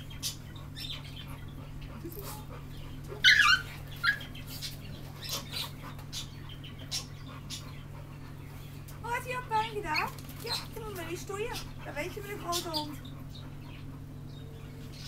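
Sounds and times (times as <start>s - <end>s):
dog whining: 0.7s - 4.4s.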